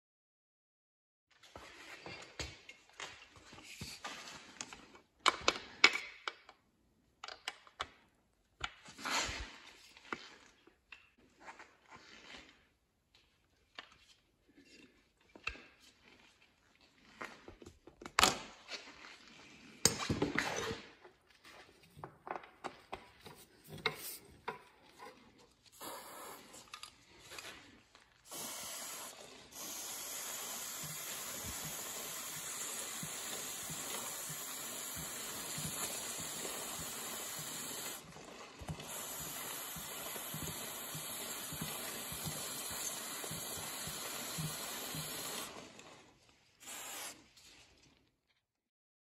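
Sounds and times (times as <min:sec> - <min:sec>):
aerosol can spraying: 0:25.8 - 0:26.7, 0:28.3 - 0:38.0, 0:38.7 - 0:45.5, 0:46.6 - 0:47.2.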